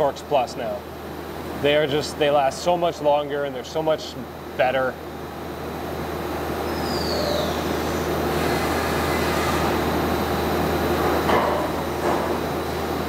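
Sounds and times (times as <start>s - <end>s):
machine shop noise: 0.0s - 13.0s
faint falling whistle: 6.7s - 7.8s.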